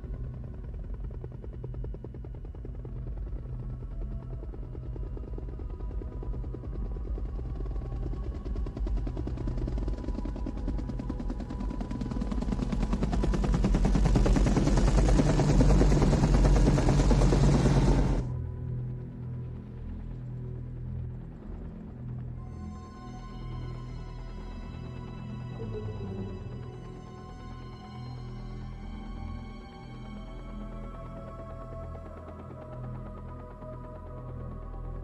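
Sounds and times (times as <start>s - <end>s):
quiet held music tones: 0.0s - 35.0s
helicopter rotor chop: 7.2s - 18.3s.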